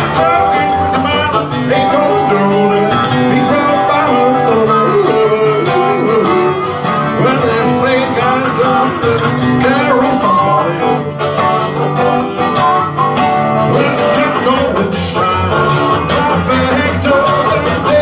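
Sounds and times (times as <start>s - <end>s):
harmonica: 0.0s - 11.1s
man singing: 0.0s - 11.9s, 13.6s - 18.0s
acoustic guitar: 0.0s - 18.0s.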